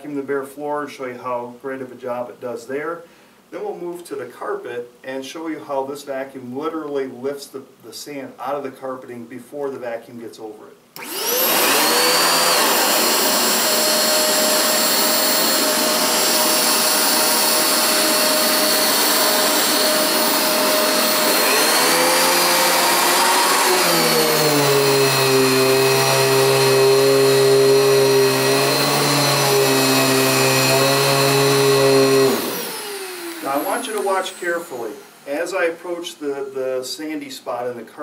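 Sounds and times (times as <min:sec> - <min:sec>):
upright vacuum cleaner running: 0:11.0 - 0:35.7.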